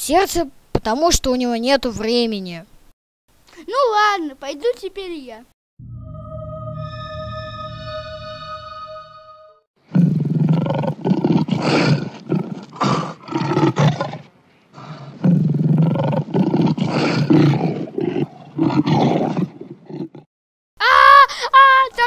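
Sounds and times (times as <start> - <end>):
lion roaring: 14.8 - 20.3.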